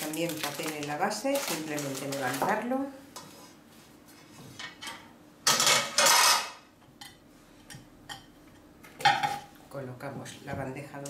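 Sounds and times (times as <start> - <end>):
plates knocking and clicking: 8.9 - 9.5.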